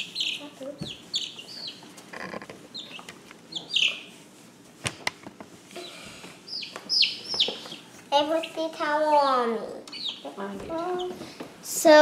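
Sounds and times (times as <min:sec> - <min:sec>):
chicks peeping: 0:00.0 - 0:04.2, 0:05.8 - 0:09.2, 0:09.9 - 0:11.4.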